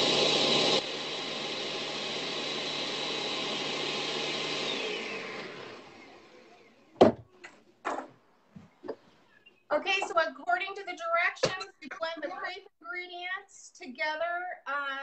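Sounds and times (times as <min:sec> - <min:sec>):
electric blender running: 0:00.0 - 0:06.9.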